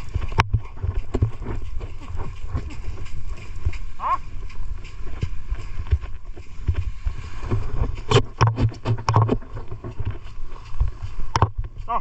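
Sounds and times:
footsteps on sand: 0.0s - 12.0s.

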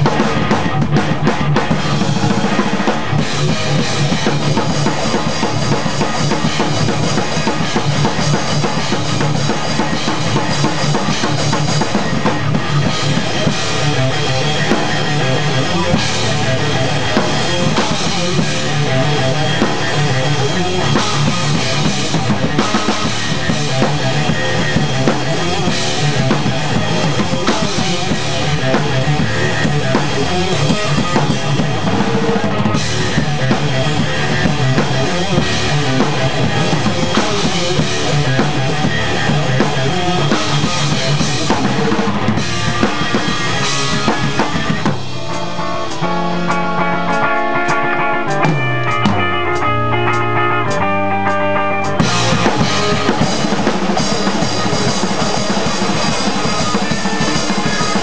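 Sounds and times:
punk band playing: 0.0s - 58.0s
rock drum kit played hard: 0.0s - 58.0s
sustained electric guitar: 0.0s - 58.0s.

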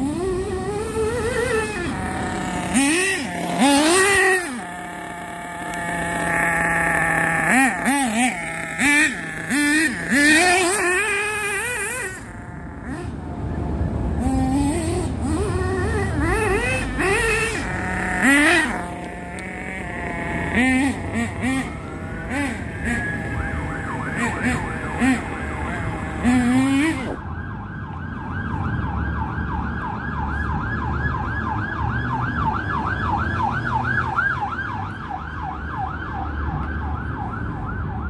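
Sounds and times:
model car engine revving: 0.0s - 27.2s.

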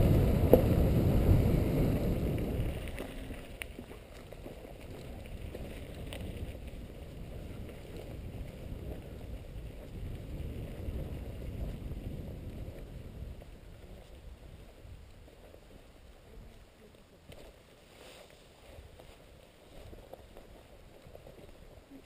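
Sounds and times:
wind buffeting camera: 0.0s - 17.6s
bike tyres rolling on dirt: 0.0s - 22.0s.

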